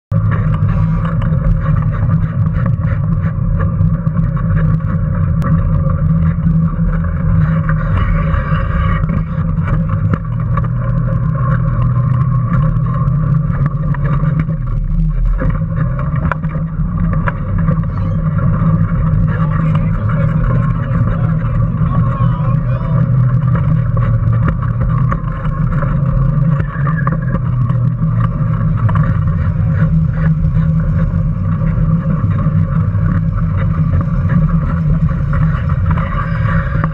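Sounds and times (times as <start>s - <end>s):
wheels rumbling on asphalt: 0.0s - 36.9s
electric motor drone and whine: 0.2s - 36.9s.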